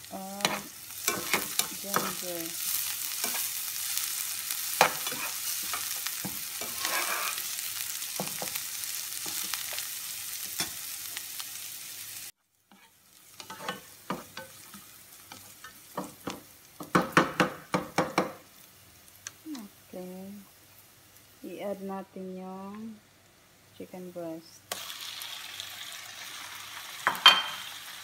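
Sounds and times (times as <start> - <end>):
food sizzling in hot oil: 0.0 - 28.0
spatula clicking and scraping pan: 0.4 - 10.9, 12.7 - 18.4.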